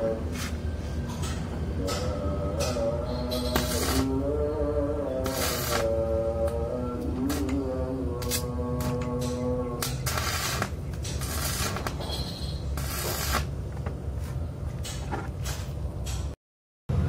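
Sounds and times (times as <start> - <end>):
steady low rumble: 0.0 - 12.0
welding arc crackling and sizzling: 2.7 - 4.2, 4.9 - 13.7.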